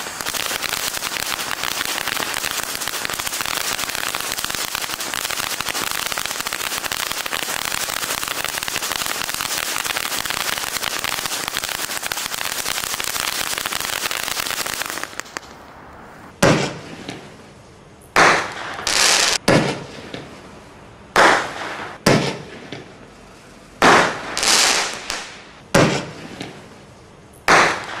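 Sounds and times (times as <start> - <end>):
firework fountain hissing and crackling: 0.0 - 16.3, 18.3 - 19.4, 23.8 - 26.8
rockets whizzing and banging: 16.2 - 17.3, 18.2 - 20.4, 23.8 - 26.6.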